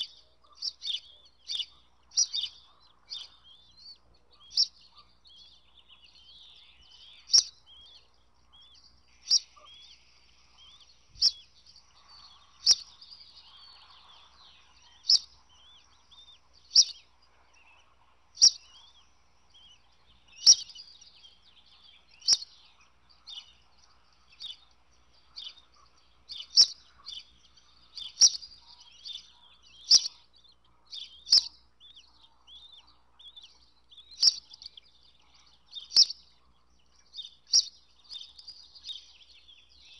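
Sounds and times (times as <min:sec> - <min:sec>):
continuous bird twittering: 0:00.0 - 0:39.9
sharp high bird chirp: 0:20.4 - 0:21.0.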